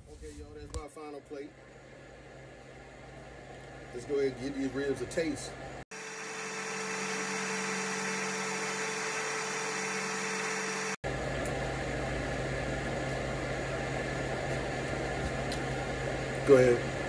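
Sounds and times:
machine hum: 5.5 - 17.0.

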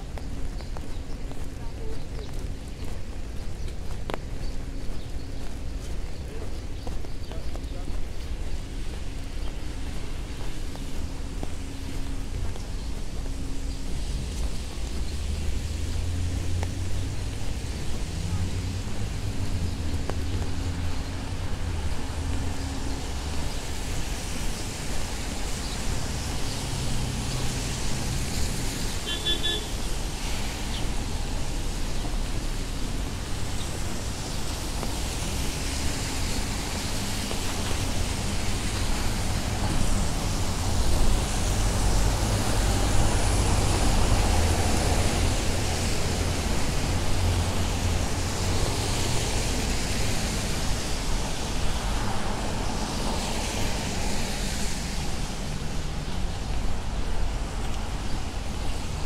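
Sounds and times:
tyres hissing on wet road: 0.0 - 59.0
passing vehicle rumble: 10.0 - 59.0.

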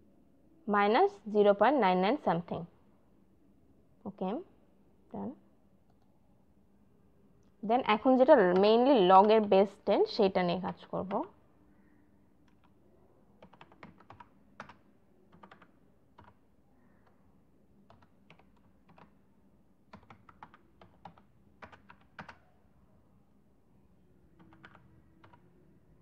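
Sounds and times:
faint low hum: 0.0 - 26.0
computer keyboard typing: 8.3 - 9.6, 12.4 - 12.8, 13.4 - 16.4, 17.8 - 19.2, 19.9 - 22.4, 24.3 - 25.6.

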